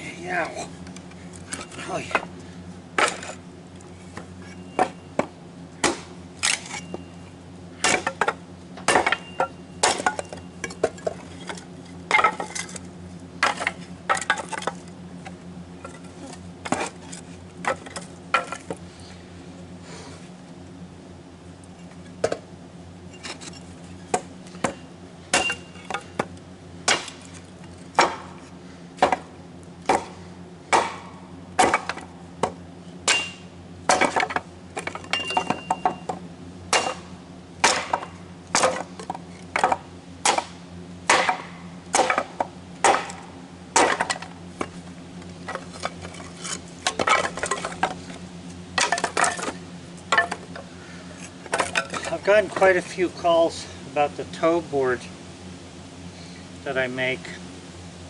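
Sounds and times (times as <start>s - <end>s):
steady low hum: 0.0s - 58.0s
hatchet chopping wood: 3.0s - 3.4s, 4.2s - 6.8s, 7.8s - 12.8s, 13.4s - 14.8s, 15.9s - 18.8s, 24.1s - 28.4s, 29.0s - 44.8s, 45.4s - 48.0s.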